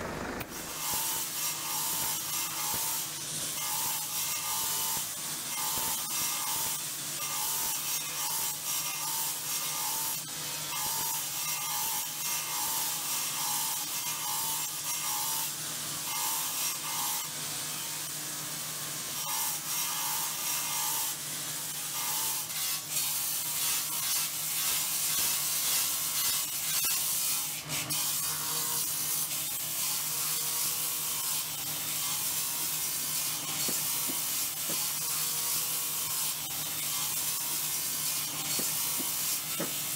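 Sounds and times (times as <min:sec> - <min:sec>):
motor hum: 0:00.0 - 0:01.8
grinding wheel rasping on stone: 0:00.0 - 0:17.3, 0:19.2 - 0:39.9.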